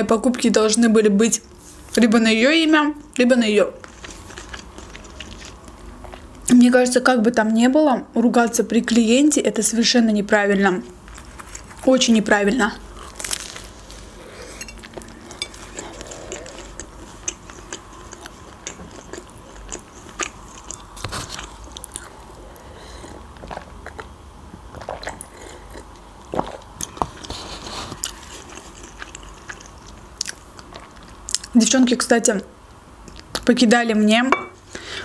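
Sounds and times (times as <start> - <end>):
person chewing food: 3.8 - 6.4, 12.9 - 31.5.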